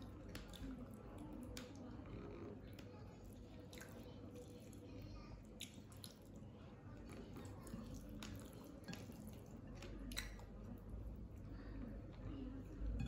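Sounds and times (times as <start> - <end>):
chewing: 0.0 - 6.4, 7.0 - 11.4
wet clicks of eating by hand: 0.2 - 1.9, 5.5 - 6.4, 7.6 - 10.8.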